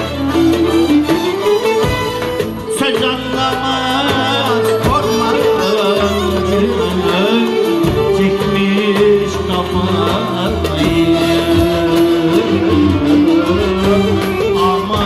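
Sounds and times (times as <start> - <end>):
violins and plucked strings: 0.0 - 15.0
man singing: 2.6 - 15.0.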